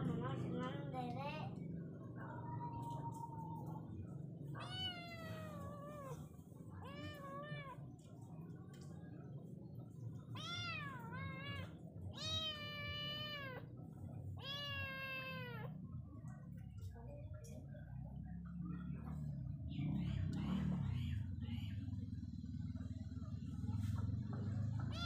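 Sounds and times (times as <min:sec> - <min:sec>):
low background rumble: 0:00.0 - 0:25.0
kitten meowing: 0:04.6 - 0:06.2, 0:10.4 - 0:13.6, 0:14.4 - 0:15.7.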